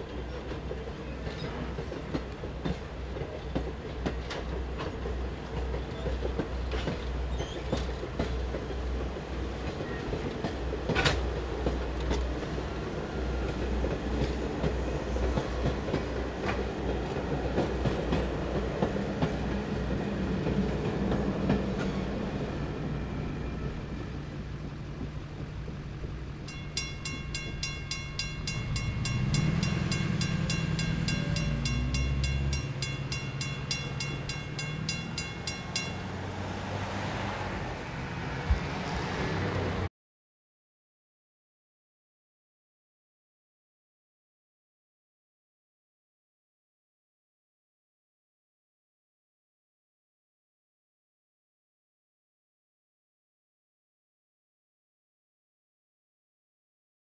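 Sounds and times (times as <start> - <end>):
cars driving across tracks: 0.0 - 39.9
train rumbling past: 0.0 - 39.9
train wheels clickety-clack: 0.1 - 22.0, 25.0 - 36.2
crossing warning bell ringing: 26.4 - 36.9.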